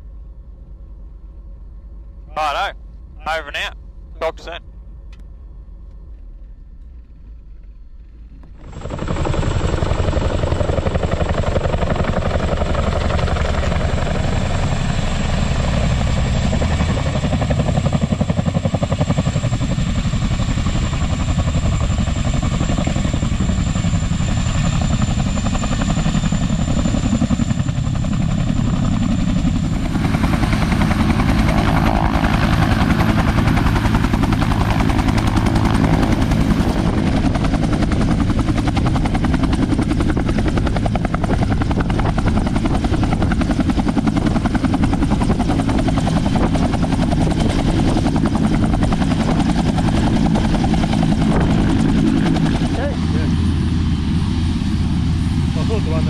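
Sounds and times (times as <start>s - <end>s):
helicopter rotor chop and whine: 2.2s - 56.0s.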